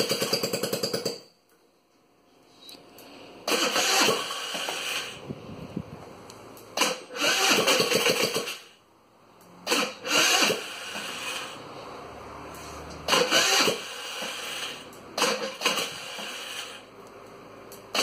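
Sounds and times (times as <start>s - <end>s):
scooter engine starting and revving: 3.4s - 5.4s, 6.8s - 8.7s, 9.6s - 16.9s.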